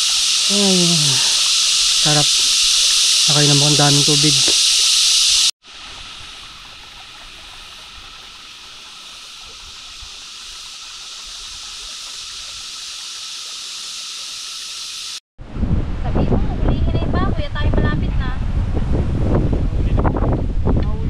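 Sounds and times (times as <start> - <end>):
forest ambience hiss: 0.0 - 15.2.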